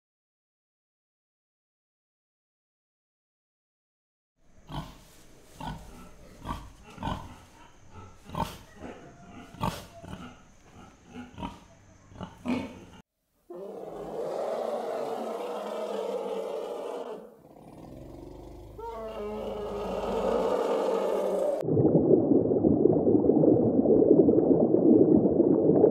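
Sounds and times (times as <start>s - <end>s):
pig grunting: 4.7s - 5.0s, 5.6s - 21.6s
elephants calling: 18.7s - 21.6s.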